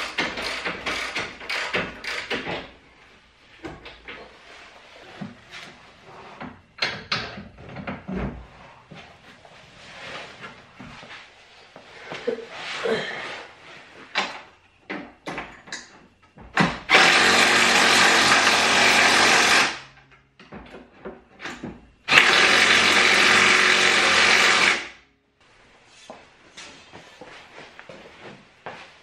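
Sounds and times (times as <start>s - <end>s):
cordless power tool driving fasteners: 0.0s - 2.6s, 16.9s - 19.8s, 22.1s - 24.9s.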